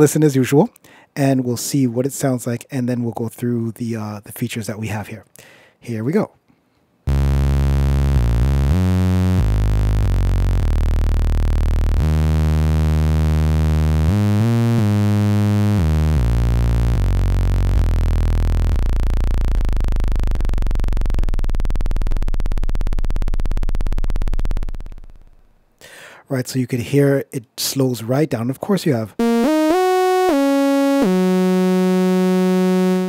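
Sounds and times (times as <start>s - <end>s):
sampler saw-wave notes: 7.1s - 25.3s, 29.2s - 33.0s.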